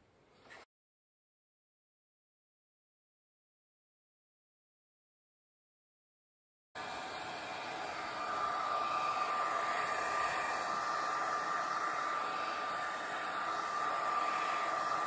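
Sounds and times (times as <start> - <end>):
hair dryer blowing air: 6.8 - 15.0
hair dryer whine: 6.8 - 15.0.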